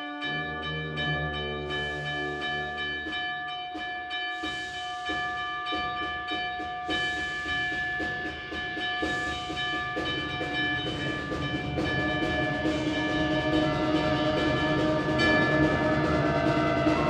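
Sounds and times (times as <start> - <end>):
concert band wind chords: 0.0 - 3.2, 9.0 - 17.0
chugging percussion rhythm: 0.0 - 17.0.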